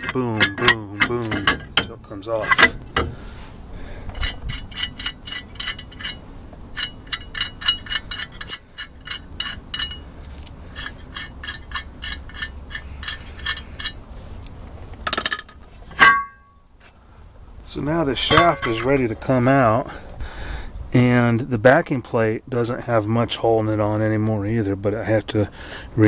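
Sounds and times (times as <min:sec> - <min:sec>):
metal clatter: 0:00.0 - 0:03.2, 0:04.1 - 0:10.1, 0:10.7 - 0:14.0, 0:15.0 - 0:16.6, 0:18.2 - 0:19.2
lug nuts clinking and rattling: 0:00.0 - 0:14.1, 0:14.9 - 0:16.6, 0:18.2 - 0:19.3.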